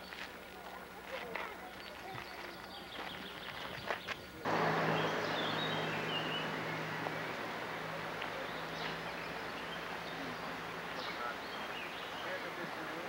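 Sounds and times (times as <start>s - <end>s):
steady rushing noise: 4.5s - 12.1s
low hum: 4.5s - 12.2s
bird chirps: 4.5s - 12.4s.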